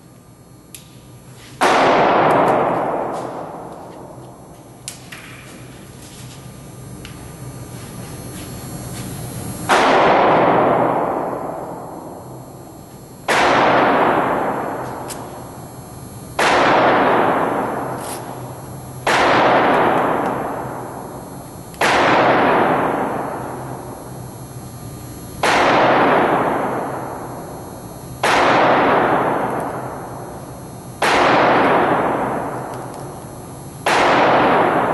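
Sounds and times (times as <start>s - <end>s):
gunshots with long echo: 1.6s - 3.7s, 9.7s - 12.1s, 13.3s - 14.8s, 16.4s - 18.0s, 19.0s - 20.9s, 21.8s - 23.6s, 25.4s - 27.1s, 28.2s - 30.0s, 31.0s - 32.7s, 33.8s - 34.9s.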